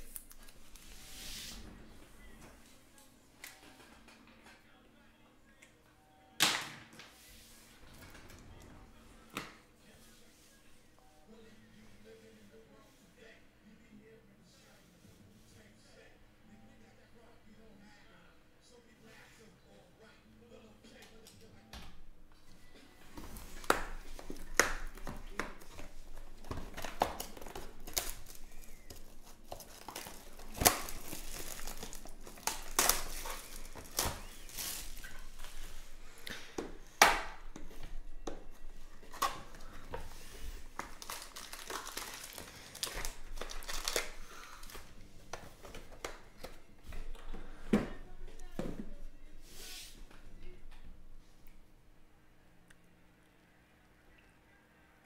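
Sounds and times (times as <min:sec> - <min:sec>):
cardboard and foil crinkling: 0:00.0 - 0:01.2, 0:23.2 - 0:37.0, 0:38.6 - 0:46.6.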